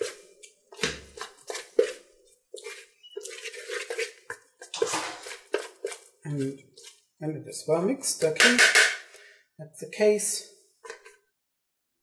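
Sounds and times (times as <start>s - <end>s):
whisk scraping plastic bowl: 0.0s - 7.1s.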